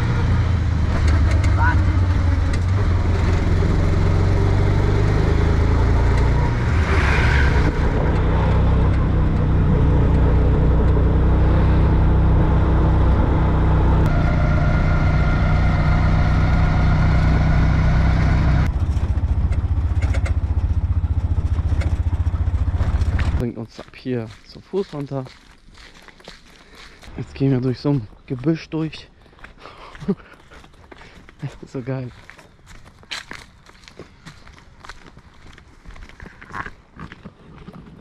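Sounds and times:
auto-rickshaw engine running: 0.0 - 23.4.

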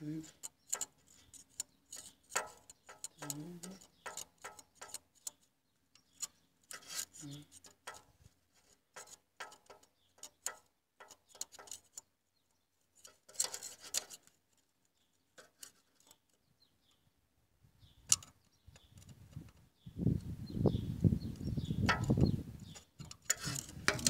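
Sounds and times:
caliper clicking on metal: 0.2 - 12.1, 18.1 - 19.6, 22.8 - 24.0.

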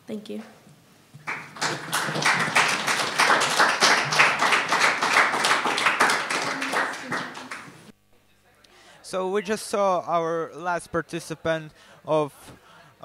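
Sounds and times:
audience clapping: 1.2 - 7.9.

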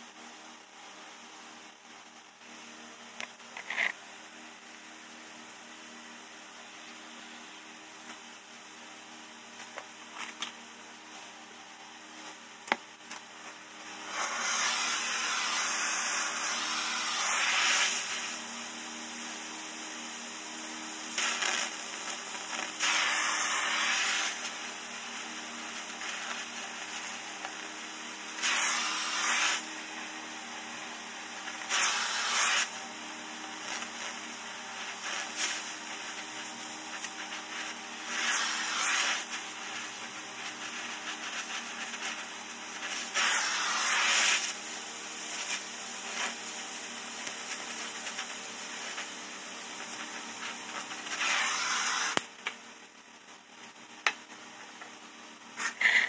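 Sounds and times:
gas torch hissing: 13.8 - 52.3, 55.6 - 56.0.

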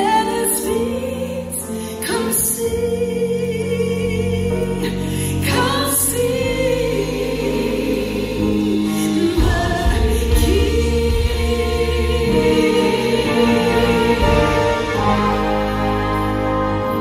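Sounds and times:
church choir singing: 5.5 - 17.0.

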